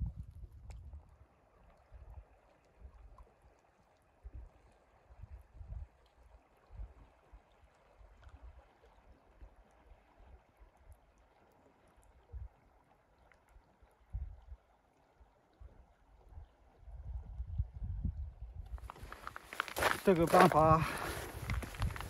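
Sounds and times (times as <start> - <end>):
wind buffeting microphone: 0.0 - 1.2, 16.8 - 22.0
flowing river: 0.9 - 17.0, 18.8 - 22.0.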